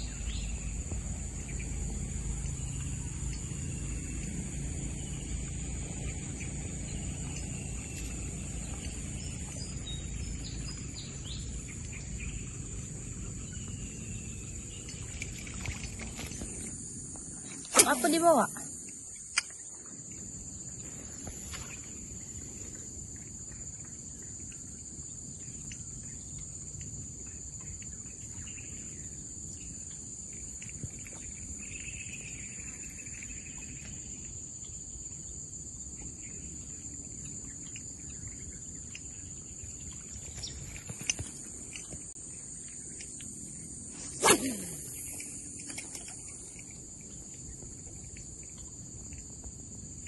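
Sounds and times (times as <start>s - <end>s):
low background rumble: 0.0s - 17.4s
insects droning: 0.0s - 50.0s.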